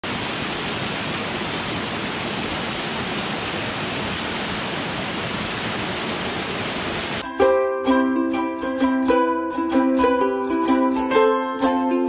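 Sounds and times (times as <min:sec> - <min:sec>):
waterfall pouring over boulders: 0:00.0 - 0:07.2.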